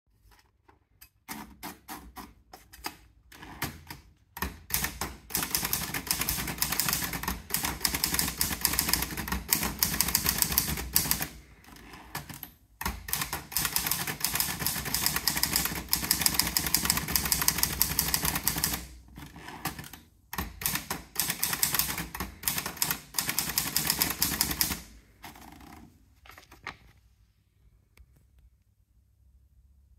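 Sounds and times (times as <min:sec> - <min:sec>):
manual typewriter typing: 0:01.2 - 0:25.8.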